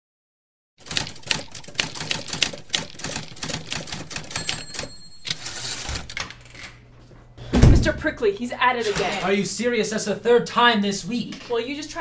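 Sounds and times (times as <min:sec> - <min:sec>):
typewriter keys clacking: 0:00.8 - 0:06.4
typewriter bell ding: 0:04.2 - 0:05.9.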